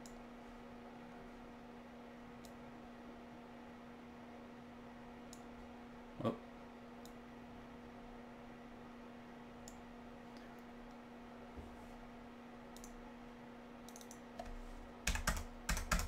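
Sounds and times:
low electrical hum: 0:00.0 - 0:16.0
computer mouse clicks: 0:02.4 - 0:02.6, 0:05.3 - 0:05.5, 0:12.8 - 0:13.0, 0:13.9 - 0:14.6.

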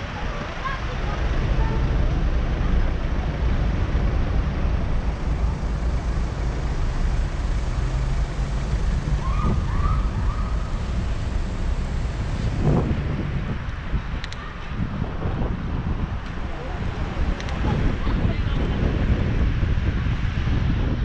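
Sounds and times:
motorcycle engine idling: 0:00.8 - 0:13.2.

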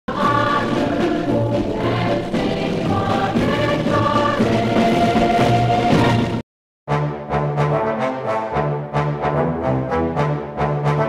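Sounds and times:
choir singing sustained chords: 0:00.1 - 0:06.4.

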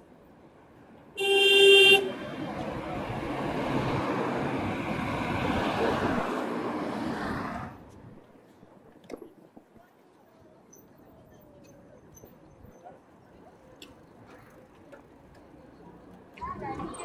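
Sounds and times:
horn honking: 0:01.2 - 0:02.2.

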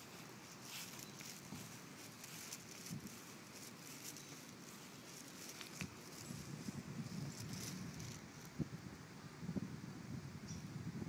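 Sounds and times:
faint rustling: 0:00.0 - 0:08.6
low background hiss: 0:00.0 - 0:11.0
soft irregular ticks and taps: 0:00.5 - 0:06.4.

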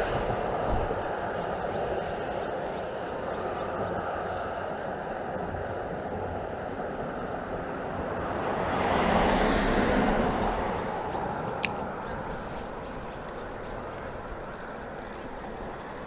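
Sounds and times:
tyre and road noise: 0:07.5 - 0:16.0.

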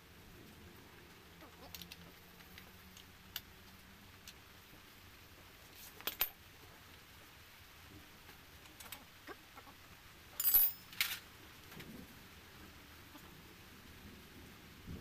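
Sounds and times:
metal tools clinking on engine: 0:10.4 - 0:11.2.

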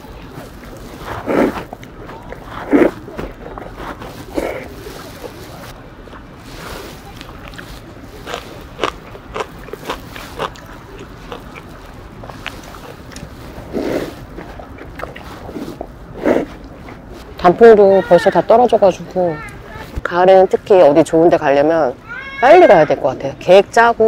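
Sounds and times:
person chewing noodles: 0:00.0 - 0:17.3
noodle slurps: 0:00.3 - 0:05.8, 0:06.5 - 0:17.2.

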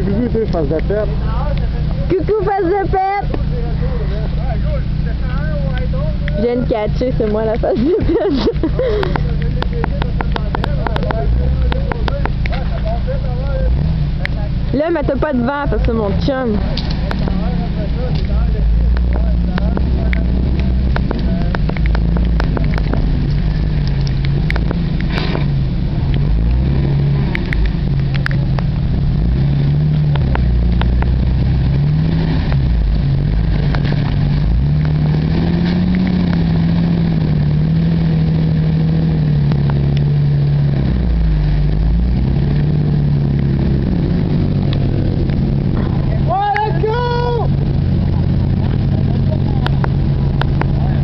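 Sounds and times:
engine revving: 0:00.0 - 0:51.0
sharp clicks: 0:18.1 - 0:26.6, 0:27.2 - 0:28.8.

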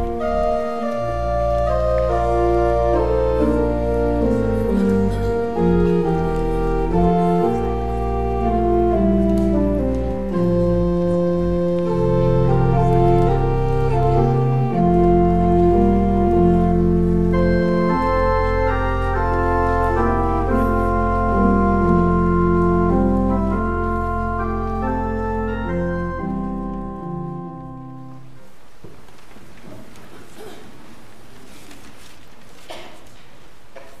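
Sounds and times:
church organ playing chords: 0:00.0 - 0:28.4.

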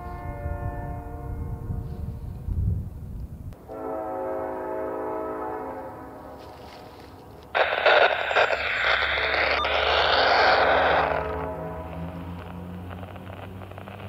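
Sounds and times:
locomotive air horn chord: 0:00.0 - 0:02.2, 0:03.6 - 0:07.1, 0:11.0 - 0:12.6
loud rushing noise: 0:07.6 - 0:14.0
low rumble: 0:07.6 - 0:14.0.

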